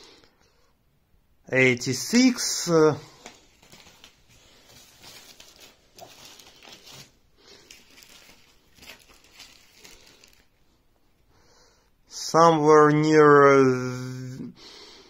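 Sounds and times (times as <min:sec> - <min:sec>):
plastic sleeve rustling: 0:02.2 - 0:10.8.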